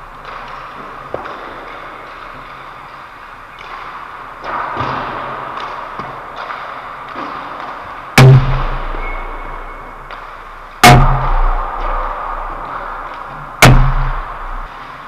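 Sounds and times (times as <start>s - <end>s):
sticks and pucks knocking: 0.2s - 3.0s
loud sharp bang: 8.2s - 9.2s, 10.8s - 12.9s, 13.6s - 14.7s.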